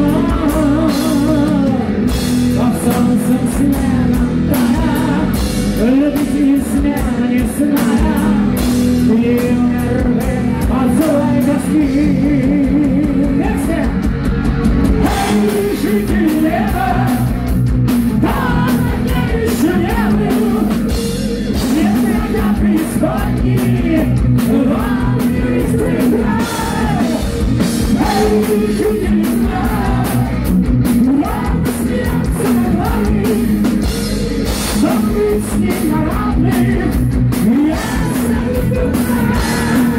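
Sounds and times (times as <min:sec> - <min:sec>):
man singing: 0:00.0 - 0:14.1, 0:15.0 - 0:17.5, 0:18.1 - 0:39.9
heavy metal band playing: 0:00.0 - 0:39.9.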